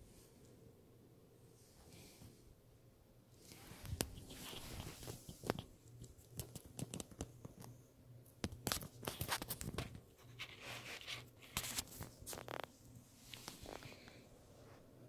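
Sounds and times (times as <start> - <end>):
faint low hum: 0.0 - 15.0
clicks and crinkling rustles: 3.6 - 14.2.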